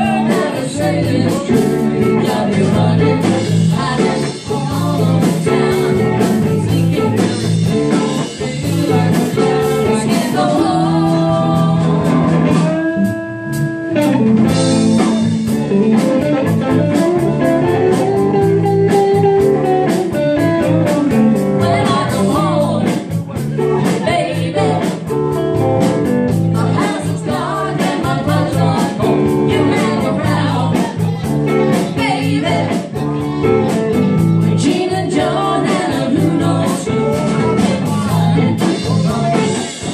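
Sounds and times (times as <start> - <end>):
person singing: 0.0 - 12.8, 26.5 - 39.9
live blues-rock band playing: 0.0 - 39.9.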